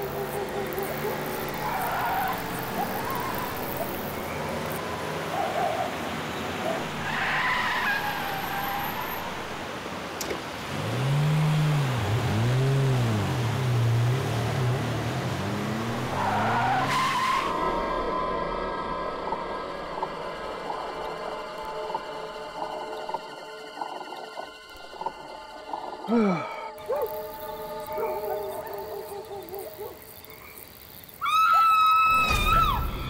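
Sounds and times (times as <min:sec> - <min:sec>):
road noise: 0:00.0 - 0:31.3
car engine revving: 0:10.5 - 0:17.8.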